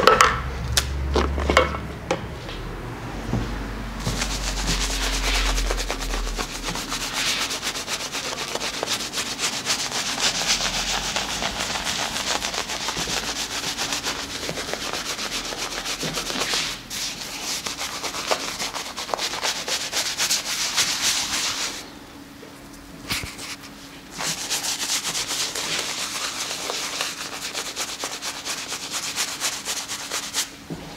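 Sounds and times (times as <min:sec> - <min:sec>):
lather rubbed on scalp: 0:04.1 - 0:21.7, 0:23.3 - 0:30.4.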